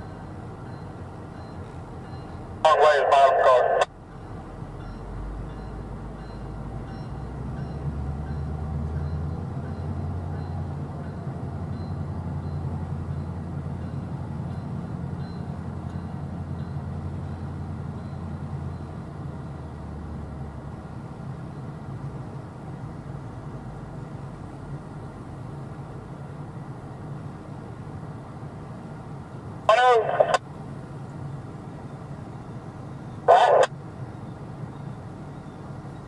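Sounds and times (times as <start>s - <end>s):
train wheels rumbling on track: 3.8s - 29.7s.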